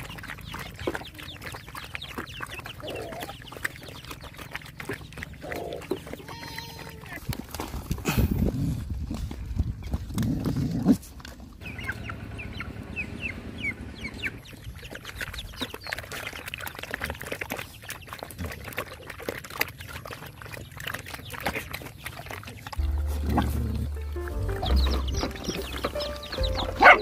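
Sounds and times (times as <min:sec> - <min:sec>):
chick peeping: 0:00.0 - 0:06.0, 0:11.6 - 0:16.4, 0:22.8 - 0:27.0
dogs eating and lapping: 0:00.0 - 0:27.0
low music: 0:22.8 - 0:27.0.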